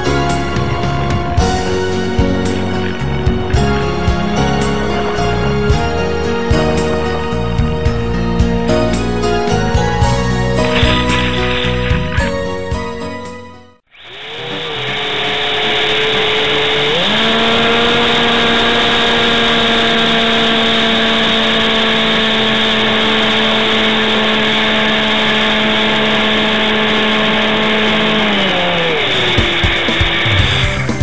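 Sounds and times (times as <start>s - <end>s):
electric motor whine: 10.5s - 13.1s, 13.9s - 31.0s.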